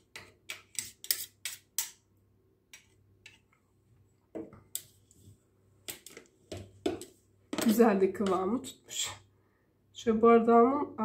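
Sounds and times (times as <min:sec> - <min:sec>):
spoon scraping plastic bowl: 0:00.0 - 0:01.9.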